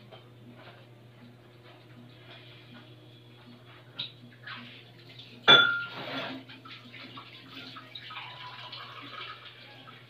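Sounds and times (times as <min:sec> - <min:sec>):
tableware clinking: 0:05.5 - 0:06.2.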